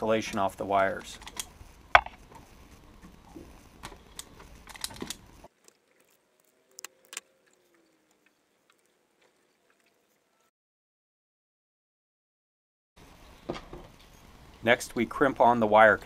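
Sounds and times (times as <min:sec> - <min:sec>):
handling noises of wires: 0:00.0 - 0:10.4
background hiss: 0:00.0 - 0:10.5, 0:13.0 - 0:16.0.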